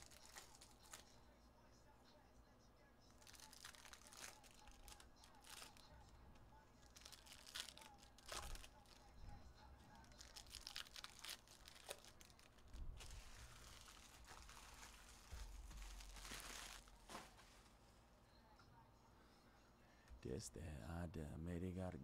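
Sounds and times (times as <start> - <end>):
foil wrappers crinkling: 0.0 - 1.2, 3.2 - 6.1, 6.8 - 9.2, 9.9 - 17.8.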